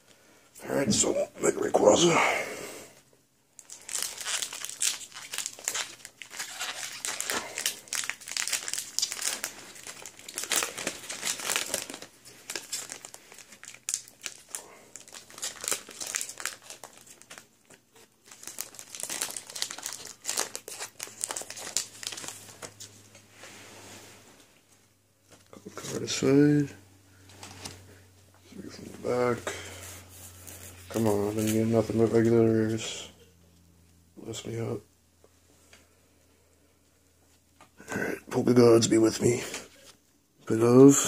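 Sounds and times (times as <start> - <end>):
foil wrapper crinkling and tearing: 3.6 - 22.9.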